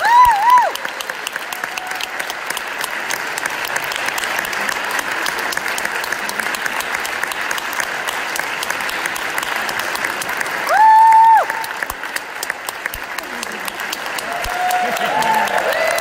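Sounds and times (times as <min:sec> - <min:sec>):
audience applauding: 0:00.0 - 0:16.0.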